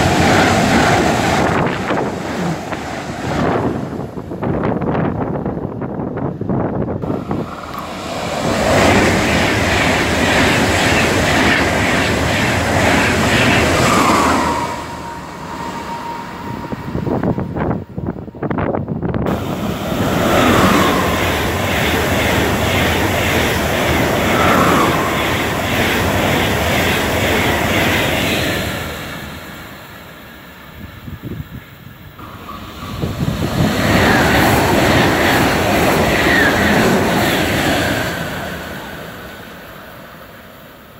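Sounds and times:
trains rushing past: 0.0s - 40.9s
short falling whines: 13.4s - 18.7s.

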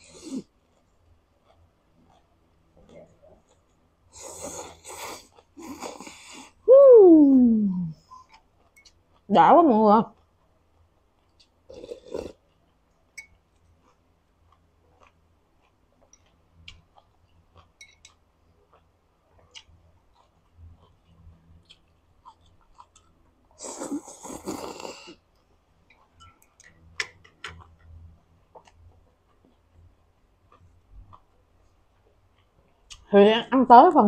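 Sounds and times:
person chewing: 0.0s - 6.6s, 7.4s - 9.3s, 10.1s - 33.1s
slurping noodles: 4.1s - 6.6s, 11.7s - 12.4s, 23.6s - 25.2s.

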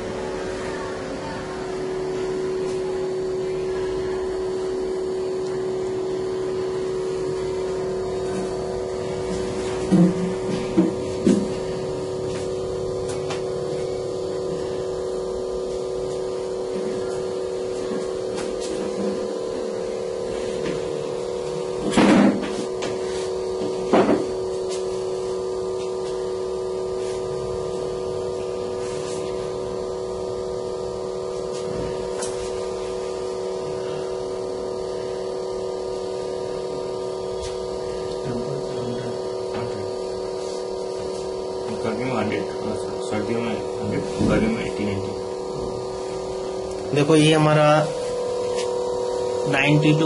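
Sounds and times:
vacuum pump humming: 0.0s - 50.0s.

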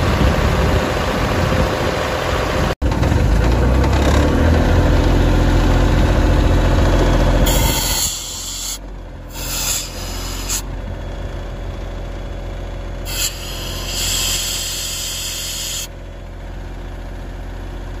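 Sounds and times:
diesel engine running: 0.0s - 18.0s
compressed air hissing: 7.5s - 10.6s, 13.1s - 15.9s.

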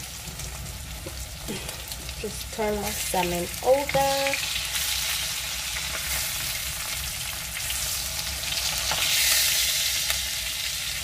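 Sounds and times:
fish sizzling in a metal pan: 0.0s - 11.0s.

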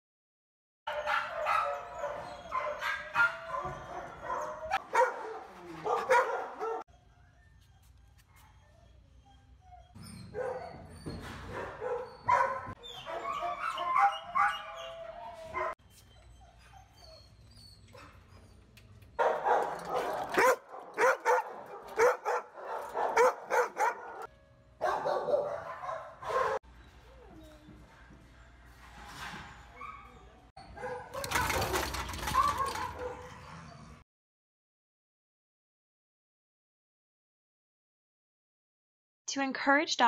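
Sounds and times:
dogs barking and yipping: 0.9s - 27.7s, 29.5s - 34.0s.

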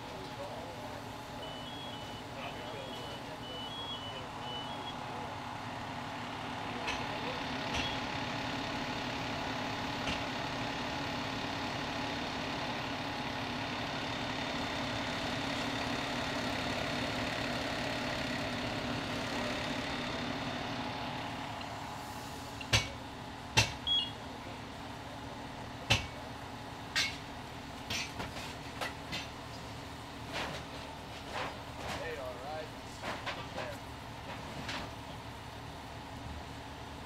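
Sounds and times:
large vehicle engine droning: 0.0s - 37.0s
sharp metal clanks: 26.9s - 27.2s.

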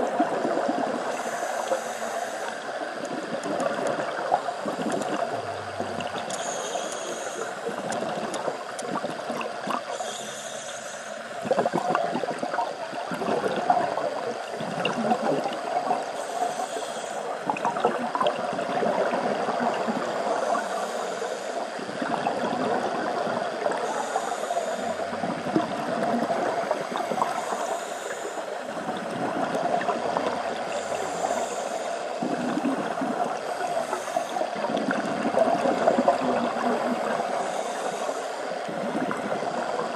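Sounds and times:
exhaled bubbles gurgling: 0.0s - 10.6s, 11.3s - 39.9s
regulator inhalation hiss: 1.0s - 3.0s, 4.6s - 8.1s, 9.9s - 11.5s, 16.0s - 17.5s, 19.9s - 21.8s, 23.6s - 25.3s, 27.0s - 28.9s, 30.5s - 32.5s, 33.4s - 34.7s, 37.0s - 39.9s.

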